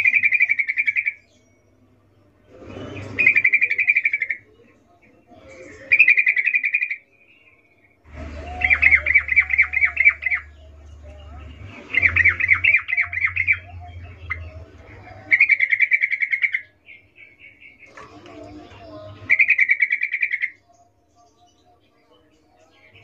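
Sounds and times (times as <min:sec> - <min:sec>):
bird chattering: 0:00.0 - 0:01.2, 0:03.0 - 0:04.6, 0:08.1 - 0:18.2, 0:18.8 - 0:20.6.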